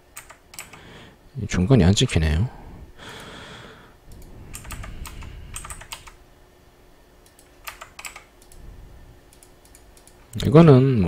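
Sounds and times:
keyboard and mouse clicking: 0:00.2 - 0:00.8, 0:04.1 - 0:06.2, 0:07.2 - 0:08.6, 0:09.3 - 0:10.4.

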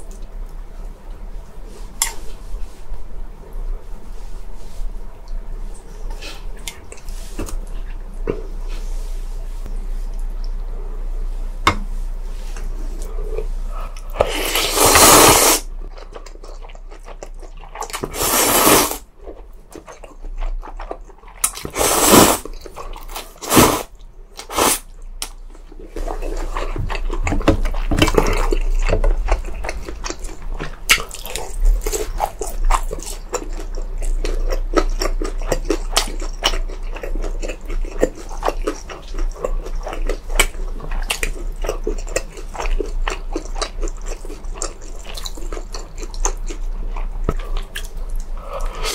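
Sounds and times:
wet chewing: 0:14.0 - 0:48.9
slurping noodles: 0:14.2 - 0:15.6, 0:18.1 - 0:19.0, 0:21.7 - 0:22.4, 0:23.4 - 0:23.9, 0:24.5 - 0:24.8.

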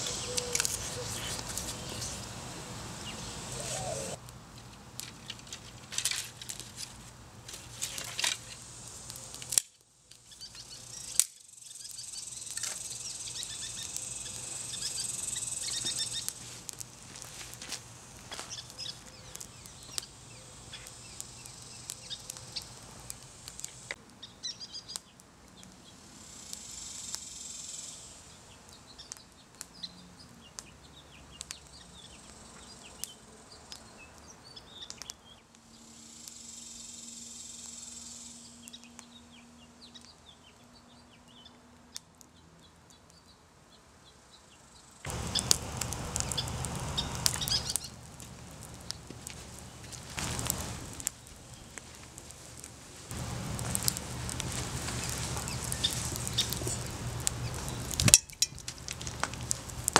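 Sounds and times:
birds chirping: 0:00.0 - 0:04.2, 0:10.2 - 0:16.4, 0:18.3 - 0:22.8, 0:44.3 - 0:48.0, 0:53.2 - 0:58.6
fire of sticks crackling: 0:00.0 - 0:43.3, 0:44.8 - 0:59.9.

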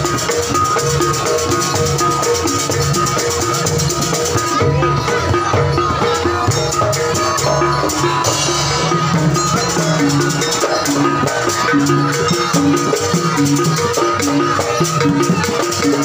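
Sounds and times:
drums: 0:00.0 - 0:16.0
metallophone notes: 0:00.0 - 0:16.0.

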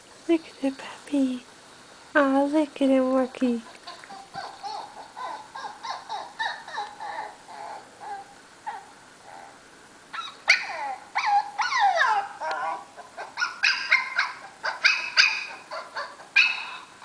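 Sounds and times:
dog yipping and whimpering: 0:03.7 - 0:17.0.

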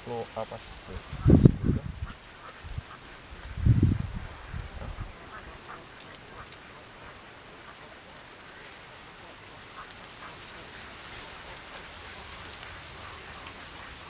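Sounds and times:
steady outdoor hiss: 0:00.0 - 0:14.0.

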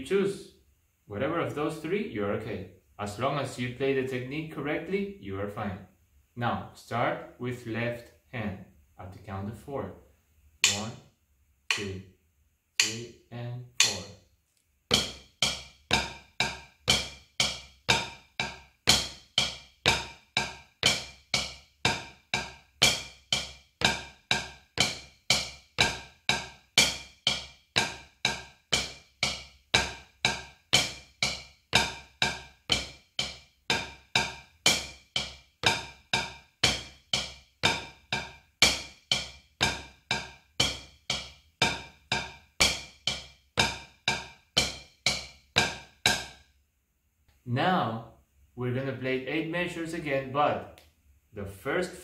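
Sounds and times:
drumsticks tapping practice pad: 0:10.6 - 0:11.1, 0:11.7 - 0:12.1, 0:12.7 - 0:14.2, 0:14.9 - 0:46.5.

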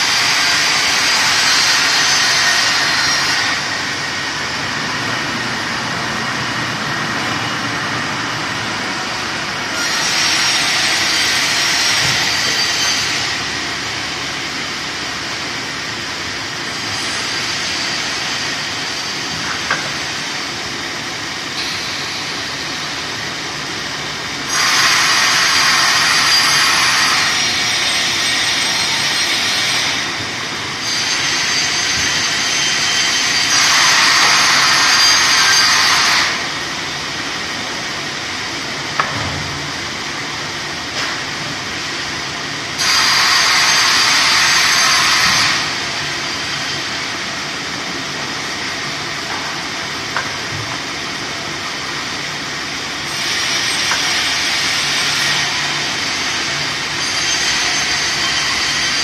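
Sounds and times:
band saw cutting log: 0:00.0 - 0:04.2, 0:09.5 - 0:13.7, 0:16.7 - 0:20.4, 0:21.5 - 0:23.0, 0:24.4 - 0:36.6, 0:42.8 - 0:46.9, 0:53.1 - 0:59.0.

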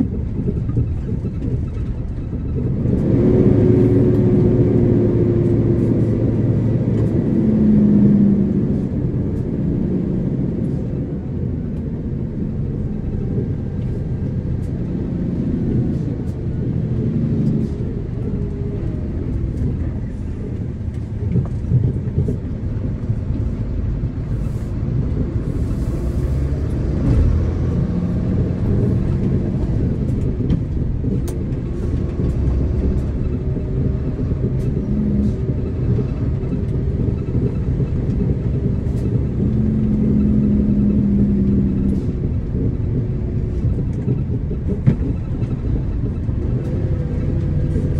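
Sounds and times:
vehicle engine and road noise: 0:00.0 - 0:47.9.

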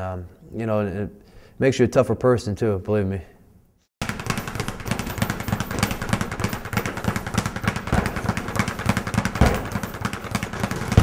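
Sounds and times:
speed bag being punched: 0:04.0 - 0:11.0.

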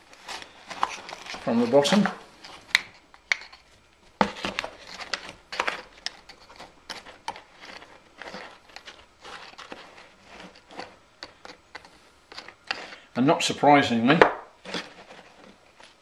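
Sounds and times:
sand crumbling: 0:00.0 - 0:02.7
hand tool scraping through sand: 0:04.8 - 0:13.0.

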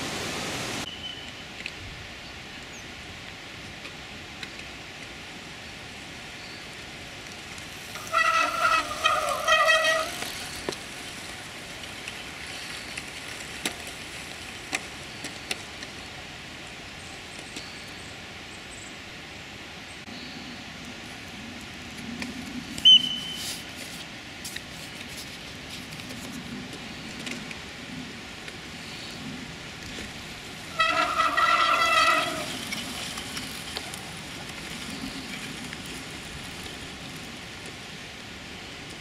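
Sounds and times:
outdoor hiss: 0:00.0 - 0:21.9, 0:22.7 - 0:39.0
horn tooting: 0:07.9 - 0:10.6, 0:30.7 - 0:32.8.

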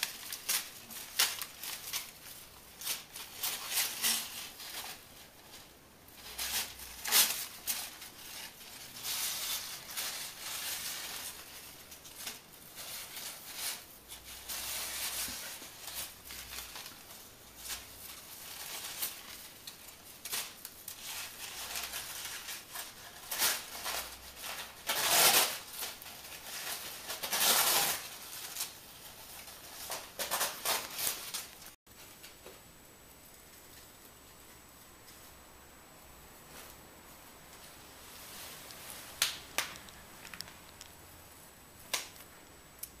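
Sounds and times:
paper rustling and crinkling: 0:00.0 - 0:32.4
paper dragged across tile floor: 0:21.0 - 0:31.5.

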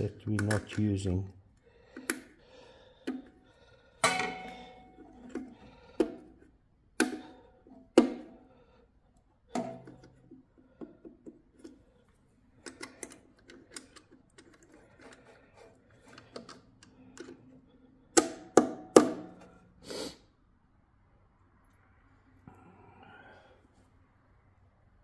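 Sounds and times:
metal parts clanking on steel box: 0:04.0 - 0:05.6
light ticks and taps of parts: 0:09.2 - 0:19.1.

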